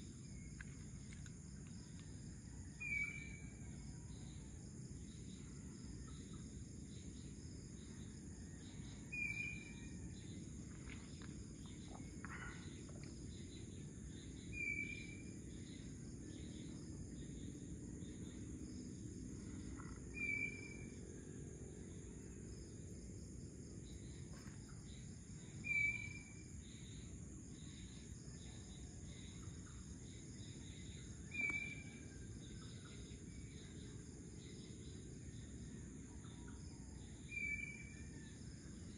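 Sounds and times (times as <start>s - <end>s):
high insect drone: 0.0s - 38.9s.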